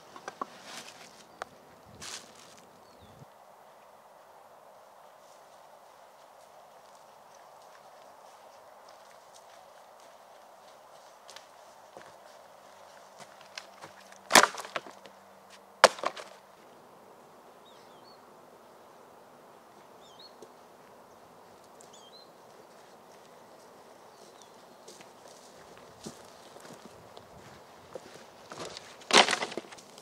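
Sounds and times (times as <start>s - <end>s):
dry branches cracking: 13.2s - 15.1s, 15.8s - 16.4s, 28.5s - 30.0s
faint bird chirps: 21.8s - 25.0s.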